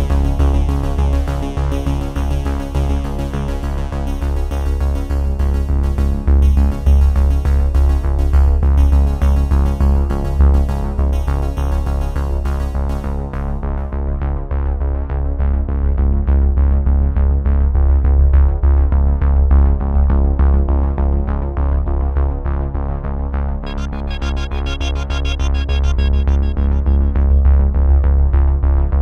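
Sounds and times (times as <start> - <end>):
synthesizer music with steady bass: 0.0 - 15.0, 23.3 - 29.0.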